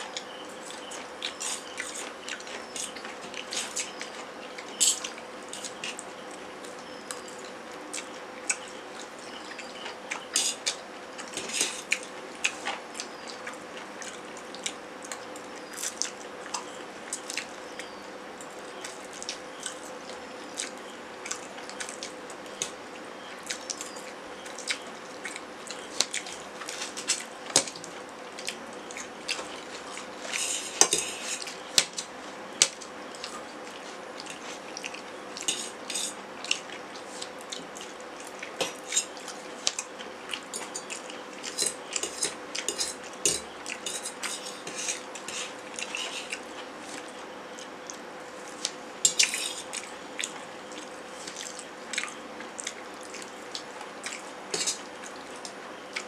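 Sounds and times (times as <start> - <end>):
forks clinking on metal plates: 30.4 - 31.4, 35.5 - 36.2, 40.5 - 46.1, 54.5 - 54.8.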